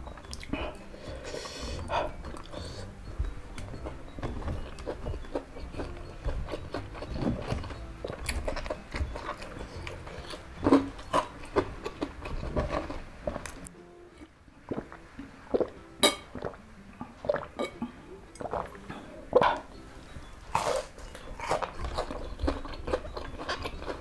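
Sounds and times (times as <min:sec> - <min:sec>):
chewing crispy food: 0:00.1 - 0:13.7, 0:20.5 - 0:24.0.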